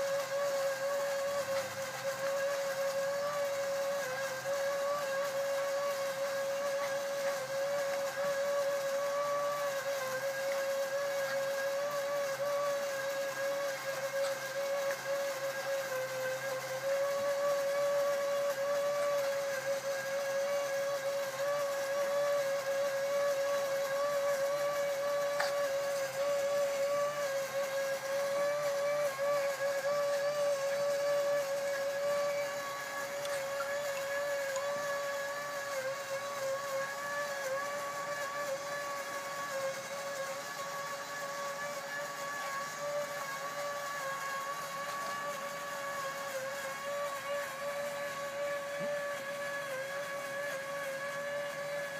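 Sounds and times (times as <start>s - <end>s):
small fan motor whine: 0.0s - 51.9s.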